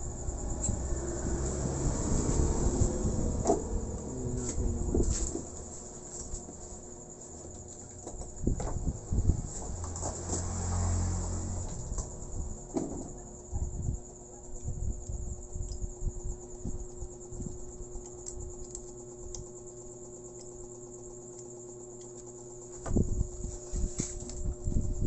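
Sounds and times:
soft low bumps: 0:00.0 - 0:07.0
faint mains hum: 0:00.0 - 0:25.0.

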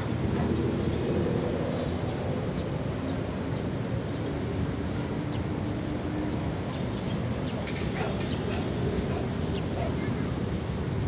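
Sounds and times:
city traffic rumble: 0:00.0 - 0:11.0.

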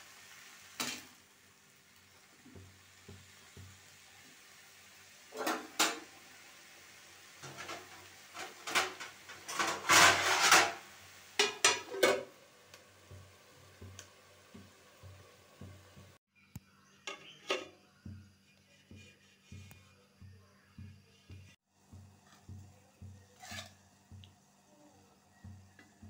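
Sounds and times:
metal lid clattering onto pan: 0:05.3 - 0:06.1, 0:07.4 - 0:10.8, 0:11.4 - 0:12.3, 0:23.4 - 0:23.8
metal spatula scraping a pan: 0:05.3 - 0:06.1, 0:07.4 - 0:12.4, 0:18.5 - 0:20.0, 0:22.2 - 0:23.9.

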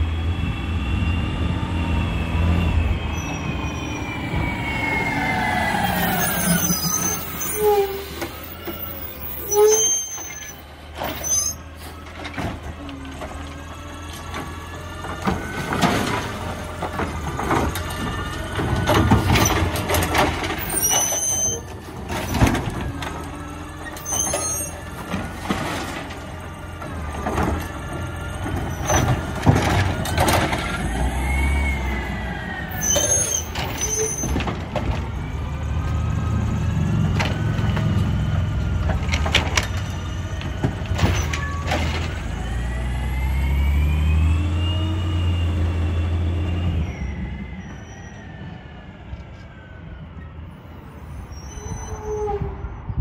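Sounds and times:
garbage truck diesel engine: 0:00.0 - 0:51.8
lifting arm and bins clanking: 0:10.2 - 0:31.4, 0:36.6 - 0:42.4.

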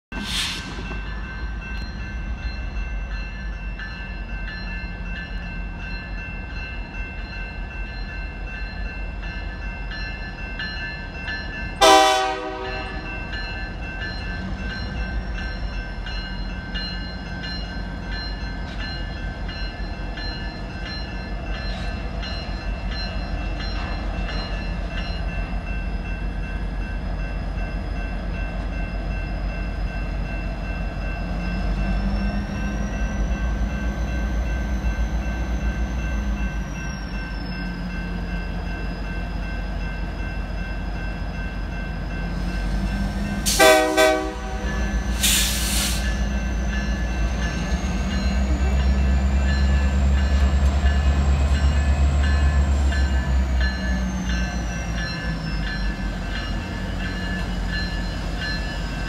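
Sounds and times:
diesel locomotives rumbling: 0:00.1 - 0:59.0
crossing bell ringing: 0:00.7 - 0:59.0
locomotive horn blast: 0:11.8 - 0:13.1, 0:43.5 - 0:45.8.

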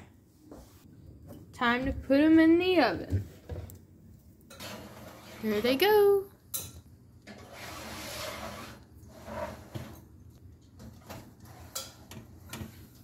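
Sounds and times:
metal pans scraping on rack: 0:04.5 - 0:05.9, 0:06.6 - 0:10.2, 0:10.8 - 0:12.8.

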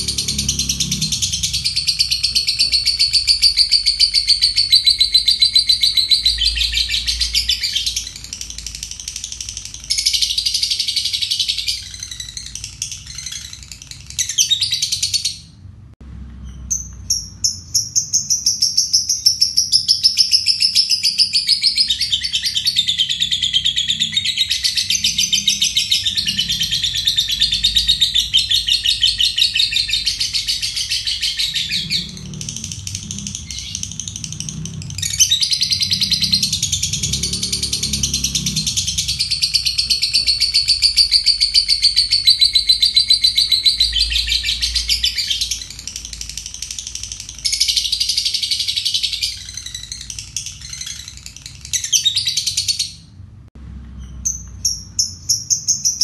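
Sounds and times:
lovebird chattering trill: 0:00.0 - 0:15.5, 0:16.7 - 0:53.1.

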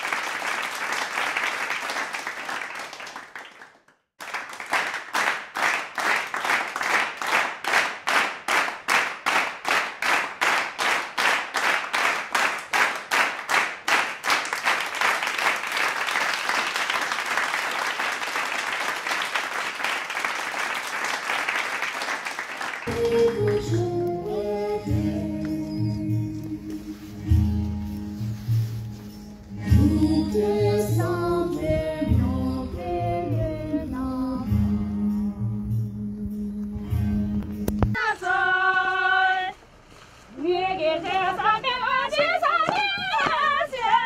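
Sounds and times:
audience clapping in unison: 0:00.0 - 0:24.4
music: 0:22.9 - 0:38.0.

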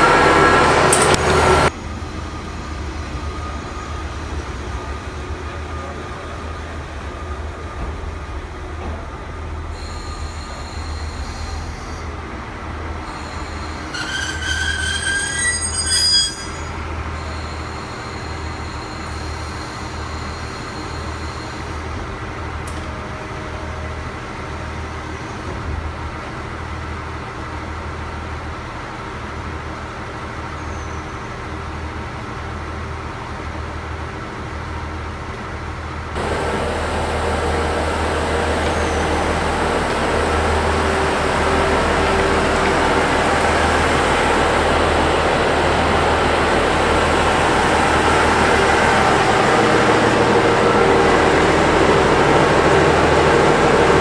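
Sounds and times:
train wheels and brakes squealing: 0:00.0 - 0:08.4, 0:09.3 - 0:12.2, 0:13.0 - 0:22.1, 0:30.4 - 0:31.6, 0:37.5 - 0:45.1
train clunk stopping: 0:00.0 - 0:12.1, 0:25.1 - 0:26.4, 0:36.2 - 0:54.0.

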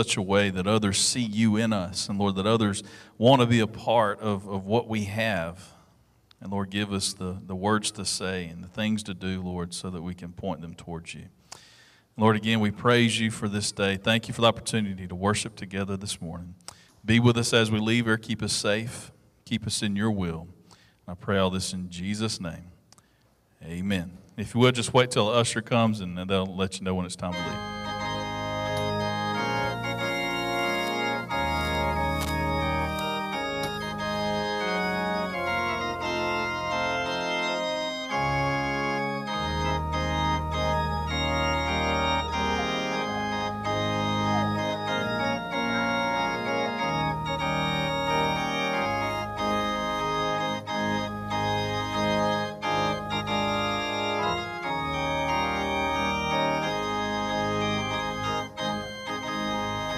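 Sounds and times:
organ music with held chords: 0:00.0 - 0:10.1, 0:25.2 - 0:59.9.

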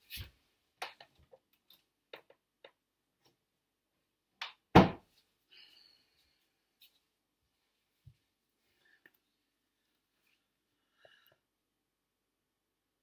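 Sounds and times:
loud thump: 0:04.8 - 0:05.0.

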